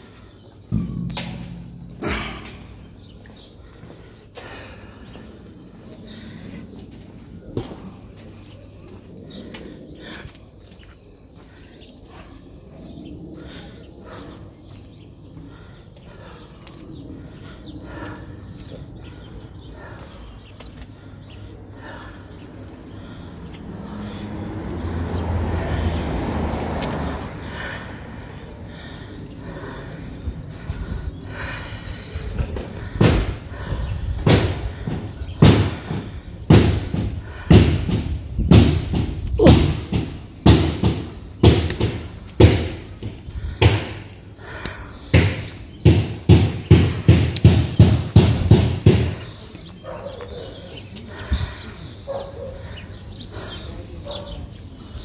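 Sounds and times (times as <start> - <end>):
heavy thumps: 0.7 - 4.1.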